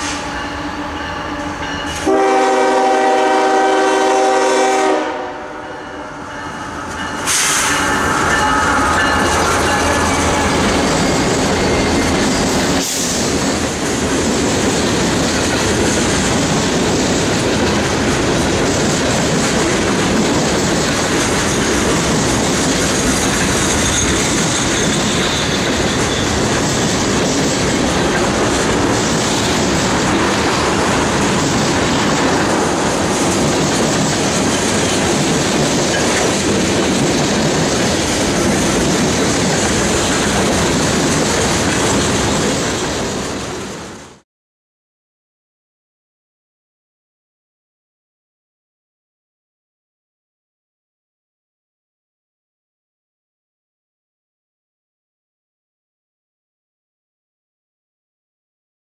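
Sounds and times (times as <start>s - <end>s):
freight train rumbling past: 0.0s - 44.2s
wheels clacking over rail joints: 6.9s - 44.0s.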